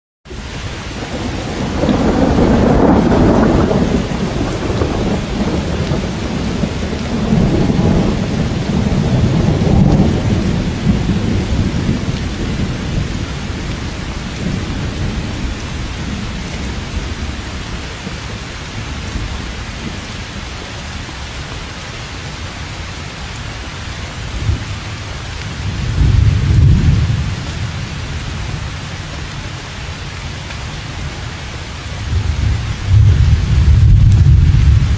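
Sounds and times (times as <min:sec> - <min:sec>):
heavy rain: 0:00.3 - 0:34.9
thunder rolling: 0:00.9 - 0:17.8, 0:25.5 - 0:28.1, 0:32.0 - 0:34.9.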